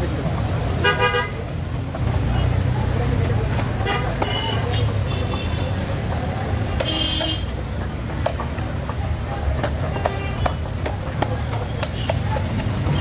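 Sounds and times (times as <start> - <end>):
road traffic rumble: 0.0 - 13.0
sharp knocks and clatter: 3.1 - 13.0.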